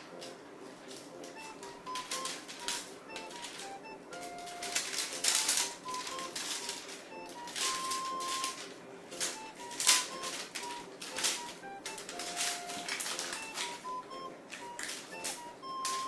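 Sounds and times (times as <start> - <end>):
light background music: 0.0 - 16.0
crinkly rustling of cat toy: 4.3 - 13.8.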